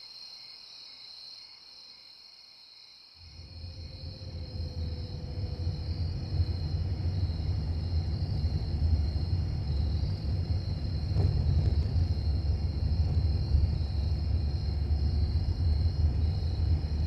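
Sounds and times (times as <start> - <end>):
high-pitched hum: 3.4 - 17.0
low rumble: 3.4 - 17.0.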